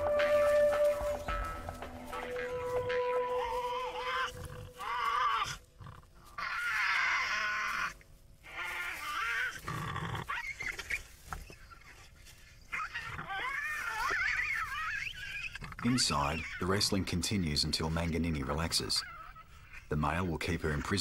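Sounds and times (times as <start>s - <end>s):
animals growling and screeching: 2.1s - 11.9s, 12.7s - 16.8s.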